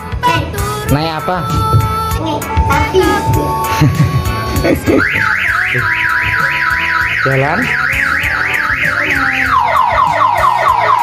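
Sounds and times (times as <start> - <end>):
electronic siren warbling: 2.6 - 3.7, 4.9 - 11.0
falling siren wail: 5.0 - 11.0.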